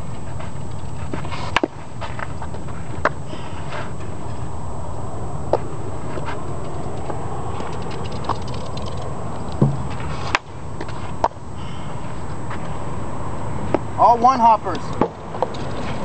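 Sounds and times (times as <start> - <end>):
outdoor background noise: 0.0 - 16.0
dull thump: 9.6 - 10.4.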